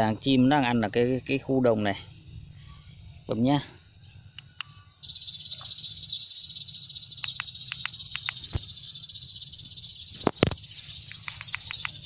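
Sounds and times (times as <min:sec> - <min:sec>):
sparrow flock chatter from speaker: 0:04.6 - 0:12.0.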